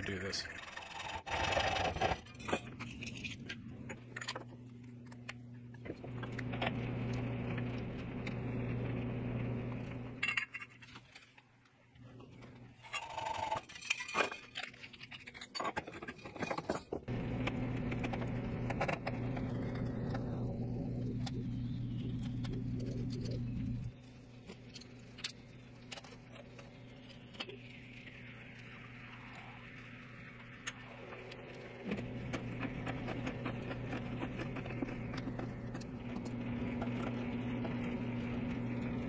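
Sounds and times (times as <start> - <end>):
low hum: 2.2 - 10.8, 17.1 - 39.0.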